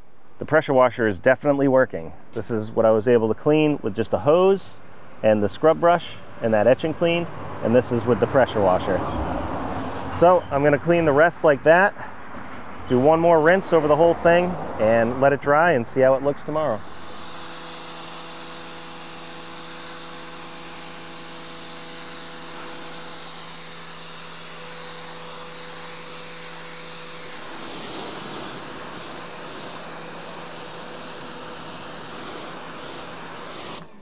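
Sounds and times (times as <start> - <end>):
pressure washer spray hissing: 16.7 - 34.0
pump humming: 16.8 - 34.0.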